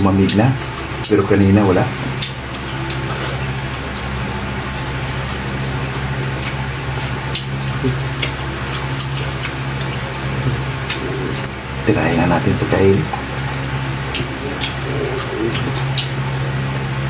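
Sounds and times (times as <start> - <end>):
steady low hum: 0.0 - 17.0
wet chewing and lip-smacking: 2.0 - 11.6, 13.1 - 17.0.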